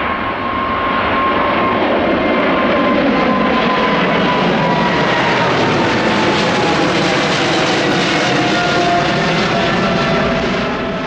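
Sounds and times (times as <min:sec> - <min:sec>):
jet engine noise passing overhead: 0:00.0 - 0:11.0.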